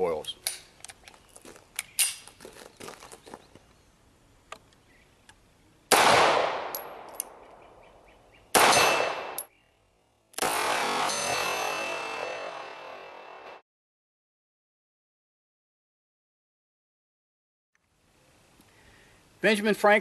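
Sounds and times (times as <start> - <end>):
pistol shots: 5.9 - 7.4, 8.5 - 9.5, 10.4 - 12.6.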